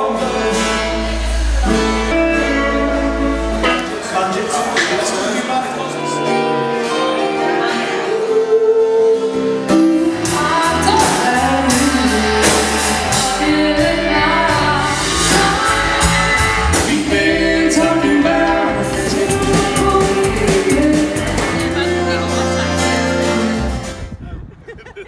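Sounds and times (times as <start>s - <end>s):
bass line: 0.0s - 4.5s, 10.1s - 24.2s
band playing with singing: 0.0s - 24.0s
drums and cymbal strikes: 9.8s - 21.8s.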